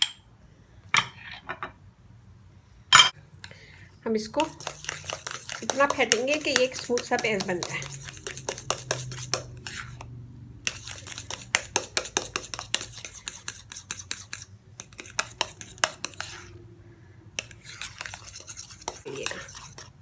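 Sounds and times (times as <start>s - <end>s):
spoon beating paste in bowl: 4.2s - 16.6s, 17.4s - 20.0s.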